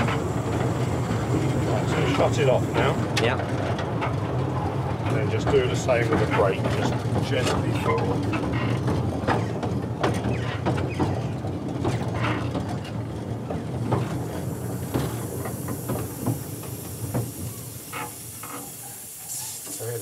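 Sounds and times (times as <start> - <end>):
steam hissing: 0.0 - 3.2, 13.9 - 20.0
steam locomotive clanking and rattling: 0.0 - 20.0.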